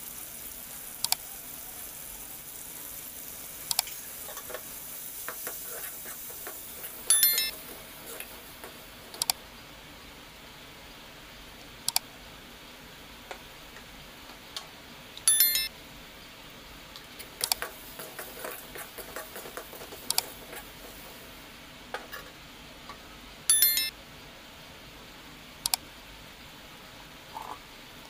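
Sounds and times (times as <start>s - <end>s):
faint oil sizzle: 0.0s - 15.0s, 15.8s - 23.4s
sharp clicks: 1.0s - 1.2s, 3.7s - 3.9s, 9.1s - 9.4s
metal spatula scraping a pan: 3.9s - 9.2s, 17.2s - 21.3s
bright electronic chime: 7.1s - 7.5s, 15.3s - 15.7s, 23.5s - 23.9s.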